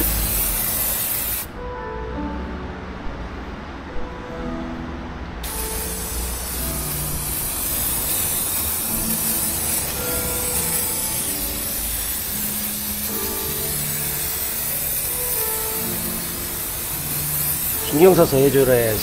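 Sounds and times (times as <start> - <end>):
aerosol can spraying hiss: 0.0 - 1.5, 5.4 - 19.0
soft background music: 0.0 - 19.0.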